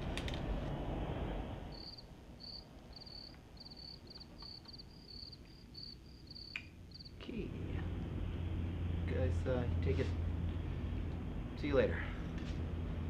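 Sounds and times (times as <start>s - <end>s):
cricket chirping: 1.7s - 7.2s.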